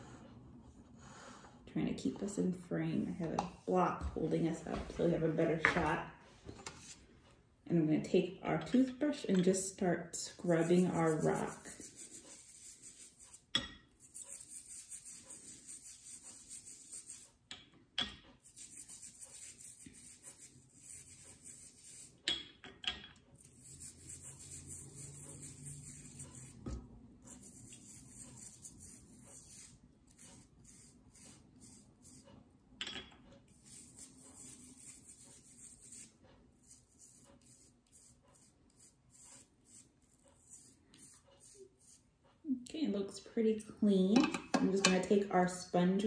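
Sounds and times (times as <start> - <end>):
toothbrush scrubbing rock: 10.2 - 17.5, 18.4 - 22.3, 23.4 - 32.2, 33.5 - 42.1.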